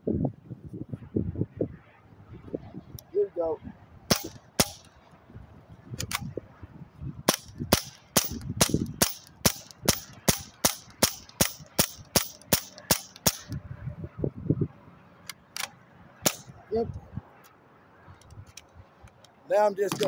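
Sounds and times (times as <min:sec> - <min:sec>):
air rifle shots: 0:04.1 - 0:04.9, 0:07.3 - 0:13.6, 0:15.6 - 0:16.5.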